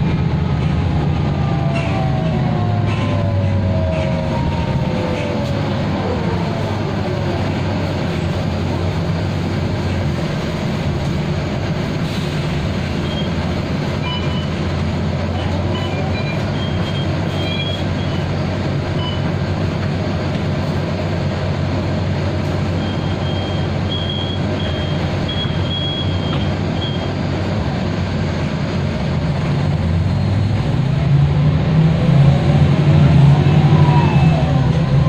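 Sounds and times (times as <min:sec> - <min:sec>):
bus diesel engine droning: 0:00.0 - 0:35.0
gearbox howl: 0:01.1 - 0:08.3, 0:33.0 - 0:35.0.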